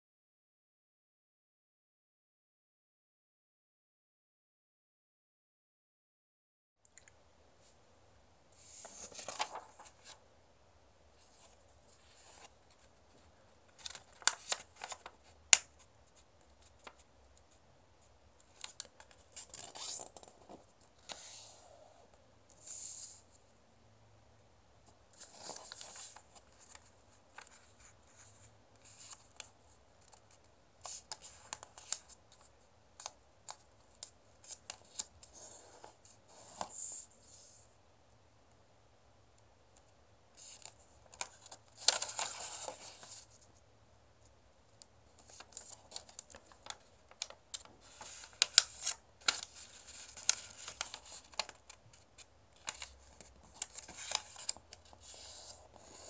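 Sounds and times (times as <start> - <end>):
paper rustling and creasing: 8.6 - 10.2, 11.2 - 17.1, 18.4 - 21.7, 25.1 - 37.6, 40.4 - 43.6, 45.1 - 56.0.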